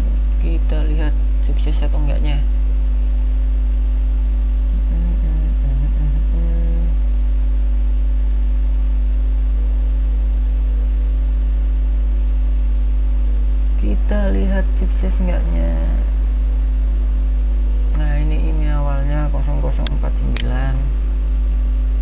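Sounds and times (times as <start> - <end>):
electrical mains hum: 0.0 - 22.0
faint pitched murmur: 4.5 - 7.4.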